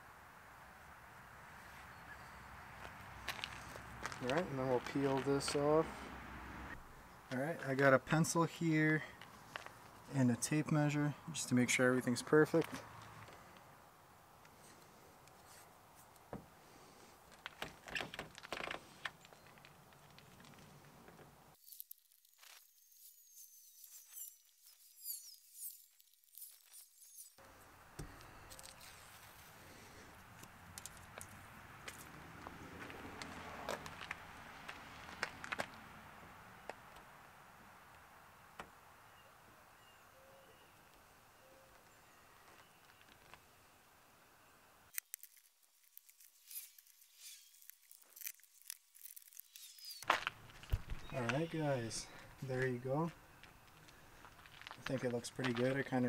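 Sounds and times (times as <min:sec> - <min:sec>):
distant bird calls: 0:01.6 - 0:02.9, 0:38.2 - 0:44.8, 0:49.6 - 0:52.5
tape measure clicks and scrapes: 0:21.6 - 0:27.4, 0:44.9 - 0:50.2.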